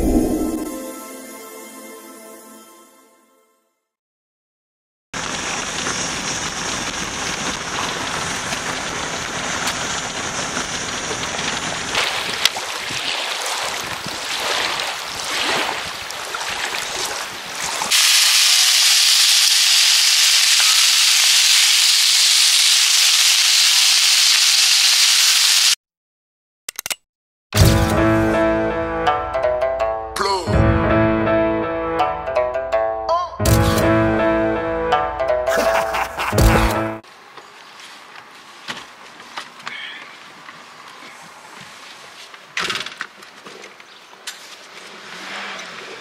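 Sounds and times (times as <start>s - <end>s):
steady rushing hiss: 17.9s - 25.8s.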